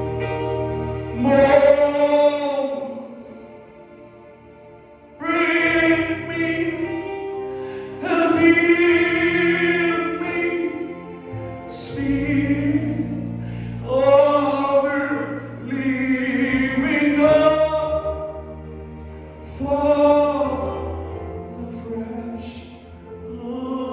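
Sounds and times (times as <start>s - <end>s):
gospel choir singing: 0.0s - 4.0s, 5.2s - 18.6s
instrumental backing: 0.0s - 23.9s.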